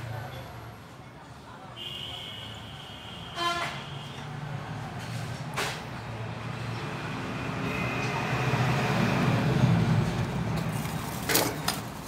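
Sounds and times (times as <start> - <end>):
road traffic rumbling: 0.0 - 12.0
vehicle passing: 4.2 - 11.3.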